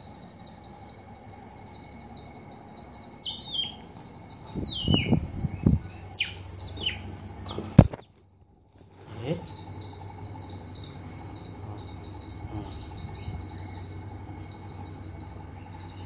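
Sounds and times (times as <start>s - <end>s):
otter chirping: 2.8s - 8.1s.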